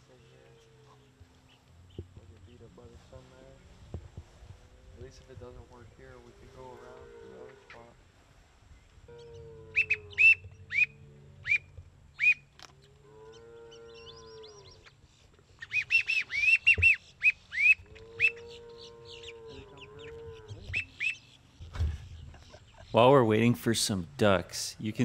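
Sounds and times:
ducks whistling calls: 0:09.1 - 0:12.6, 0:13.2 - 0:23.4.

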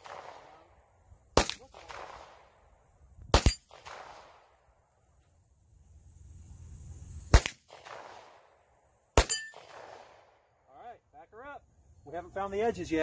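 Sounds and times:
pistol shots: 0:00.0 - 0:00.7, 0:01.4 - 0:02.5, 0:03.3 - 0:04.4, 0:07.3 - 0:08.4, 0:09.2 - 0:10.3
steel target ringing: 0:09.2 - 0:09.6.

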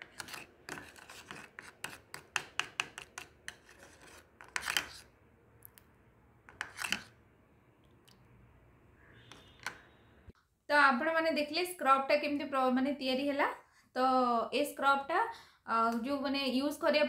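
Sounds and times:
metal spoon scraping plastic bowl: 0:00.0 - 0:05.1, 0:06.5 - 0:07.2, 0:09.2 - 0:09.9.

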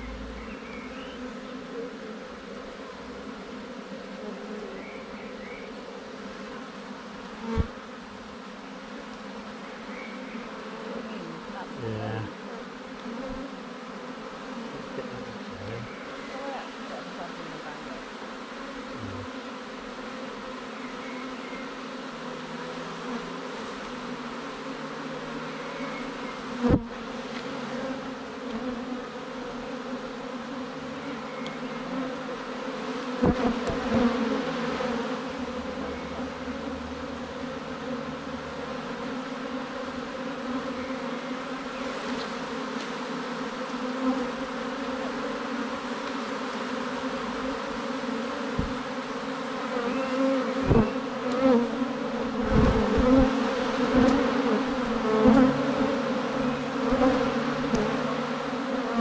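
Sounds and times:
bees buzzing: 0:00.0 - 0:59.0
sudden thumps: 0:48.6 - 0:48.8.

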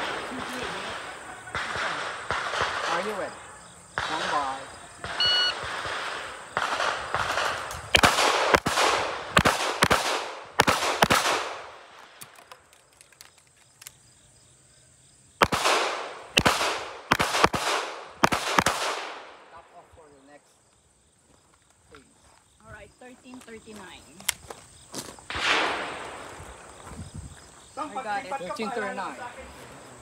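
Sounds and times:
pistol shots: 0:00.0 - 0:03.4, 0:04.0 - 0:11.8, 0:15.4 - 0:19.4, 0:25.3 - 0:26.3
shot timer beep: 0:05.2 - 0:05.6.

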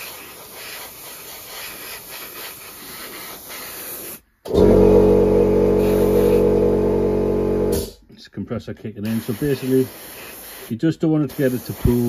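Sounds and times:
airbrush spraying hiss: 0:00.0 - 0:04.4, 0:05.8 - 0:06.4, 0:09.1 - 0:12.0
air compressor humming: 0:04.5 - 0:08.0.

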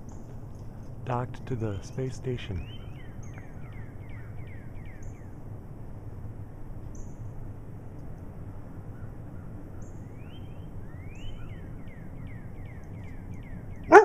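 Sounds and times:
low background rumble: 0:00.0 - 0:14.0
songbirds chirping: 0:00.0 - 0:14.0
rising slurred bird whistles: 0:10.0 - 0:14.0.

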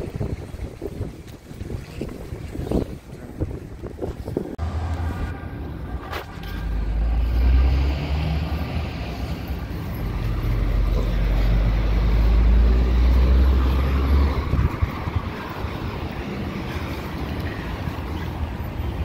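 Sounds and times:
vehicle engine rumble passing: 0:04.5 - 0:19.0.

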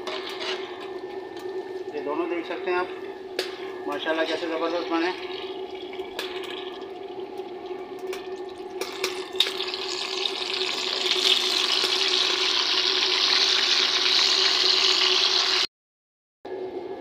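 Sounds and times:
meat sizzling in hot fat: 0:08.9 - 0:15.7.

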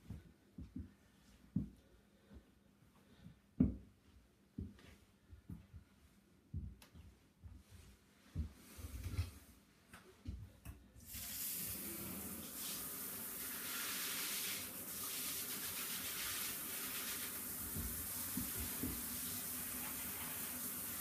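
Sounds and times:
water spraying from shower head: 0:11.0 - 0:21.0.

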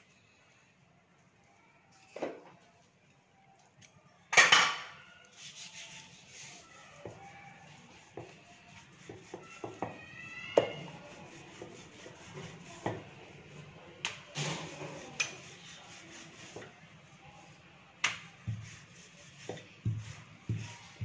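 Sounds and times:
rolling pin rolling dough: 0:05.3 - 0:21.0.

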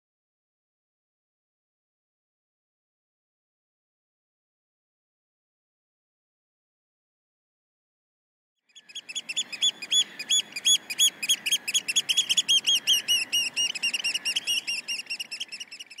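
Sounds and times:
bird singing chirps: 0:08.7 - 0:16.0
faint background noise: 0:08.8 - 0:16.0.

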